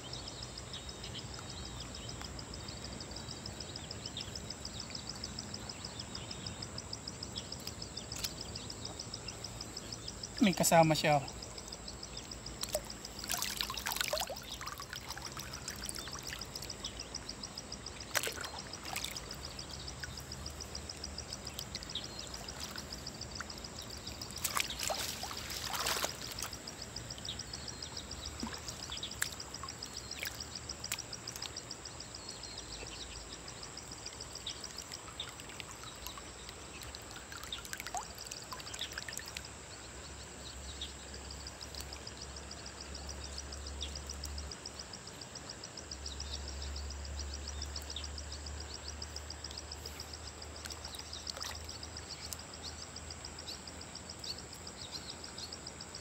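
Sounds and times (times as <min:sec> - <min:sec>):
river water splashing and dripping: 0:03.0 - 0:56.0
water pouring off net: 0:13.2 - 0:16.4, 0:24.4 - 0:26.4
fish flapping in net: 0:24.4 - 0:26.3.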